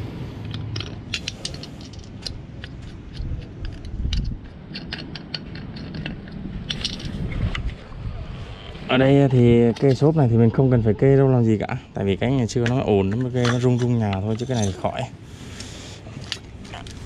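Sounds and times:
small clicks and knocks: 0.4 - 7.7.

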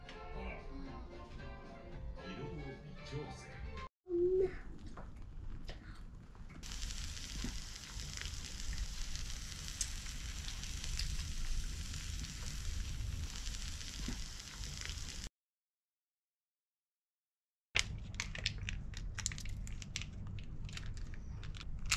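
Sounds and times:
batter sizzling on a grill plate: 6.6 - 15.3.

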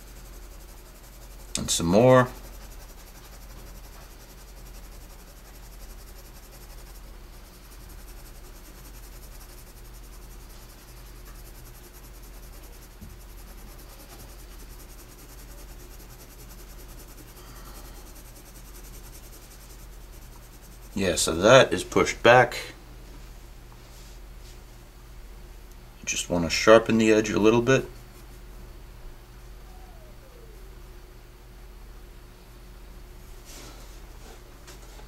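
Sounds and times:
pencil scratching on paper: 0.0 - 21.4
low electrical hum: 0.0 - 35.0.

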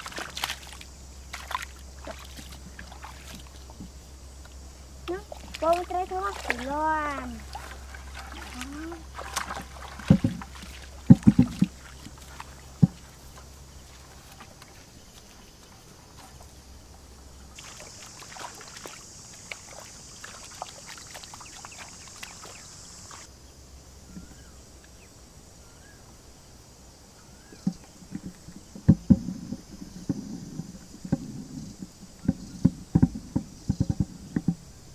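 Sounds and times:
wind rumble on microphone: 0.0 - 17.6, 26.9 - 34.9
mud and water splashing: 0.0 - 23.4
high steady hiss: 0.0 - 34.9.

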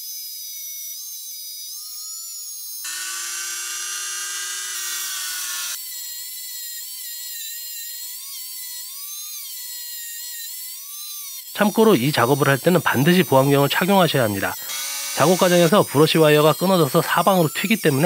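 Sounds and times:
rotary tool wire brush whine: 0.8 - 6.0.

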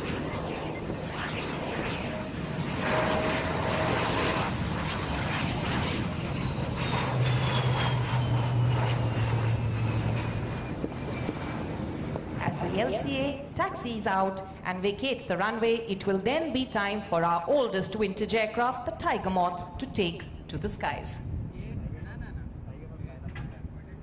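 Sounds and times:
jet engine roar: 0.0 - 24.0
jet engine whine: 0.0 - 24.0
strong low hum: 21.2 - 24.0.

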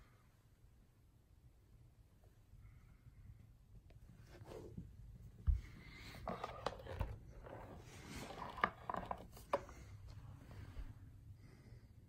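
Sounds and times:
rubbing and scraping: 4.2 - 10.9.

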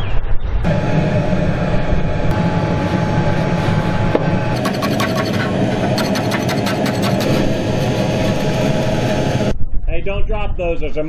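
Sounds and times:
furnace blower drone: 0.6 - 9.6
scraping and rasping strokes: 2.8 - 8.5.

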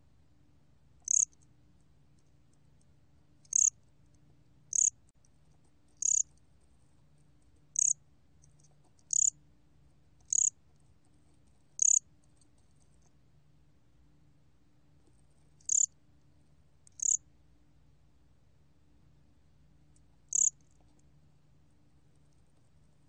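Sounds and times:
cricket chirping: 1.0 - 1.5, 3.4 - 3.8, 4.7 - 5.0, 6.0 - 6.4, 7.7 - 8.0, 9.0 - 9.4, 10.2 - 10.6, 11.8 - 12.0, 15.6 - 16.0, 16.9 - 17.2, 20.3 - 20.8.

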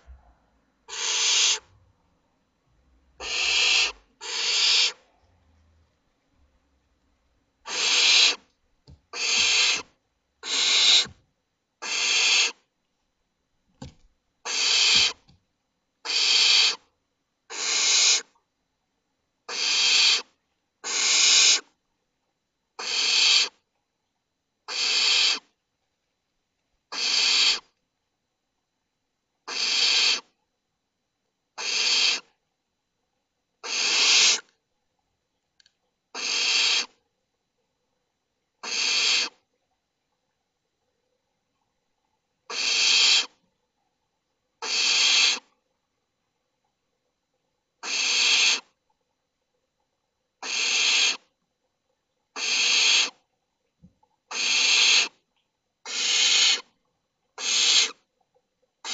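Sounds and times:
owl nestlings hissing calls: 0.9 - 1.7, 3.2 - 5.0, 7.6 - 8.4, 9.1 - 11.1, 11.8 - 12.6, 14.4 - 15.2, 16.0 - 16.8, 17.5 - 18.3, 19.5 - 21.7, 22.8 - 23.6, 24.7 - 25.5, 26.9 - 27.7, 29.5 - 30.3, 31.6 - 32.3, 33.6 - 34.5, 36.2 - 37.0, 38.6 - 39.4, 42.5 - 43.3, 44.6 - 45.5, 47.8 - 48.7, 50.4 - 51.2, 52.4 - 53.2, 54.3 - 55.2, 55.8 - 56.7, 57.4 - 58.0.

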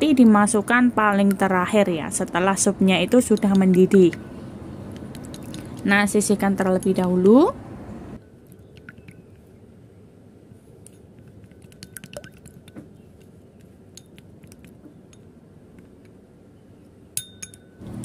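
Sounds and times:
chopsticks clicking against bowl: 3.2 - 4.2.

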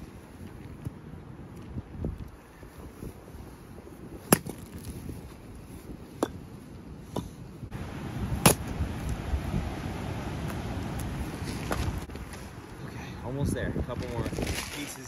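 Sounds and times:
axe splitting firewood: 4.3 - 4.9, 8.3 - 8.8.

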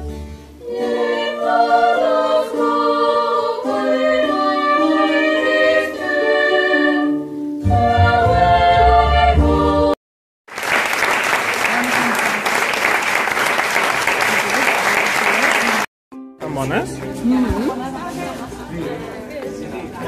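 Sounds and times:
women's choir singing: 0.6 - 10.0.

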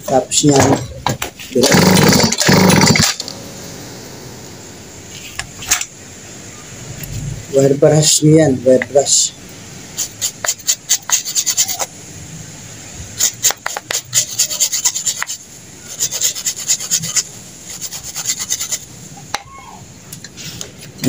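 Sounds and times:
wire brush scratching spark plug: 13.2 - 15.4.

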